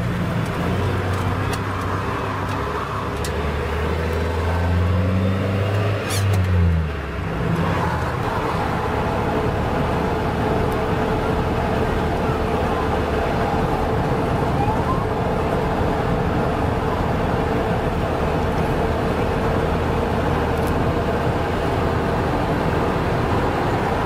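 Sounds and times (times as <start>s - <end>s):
road noise: 0.0s - 24.0s
van engine hum: 0.0s - 24.0s.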